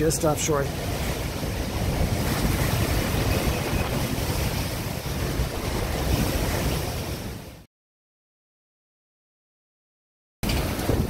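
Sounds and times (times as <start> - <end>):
wind buffeting microphone: 0.7 - 7.6, 10.4 - 11.0.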